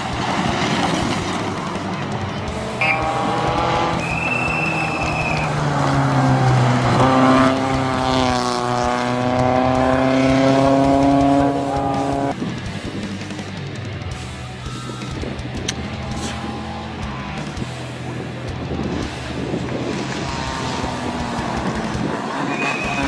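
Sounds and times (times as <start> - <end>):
rally car engines at high revs: 0.0 - 12.4, 15.6 - 23.0
high squeal: 4.0 - 5.6, 22.4 - 23.0.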